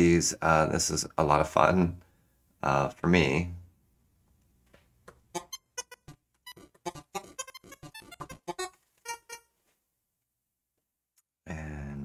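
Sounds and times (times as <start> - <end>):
synthesized keyboard beeps: 5.4 - 9.4.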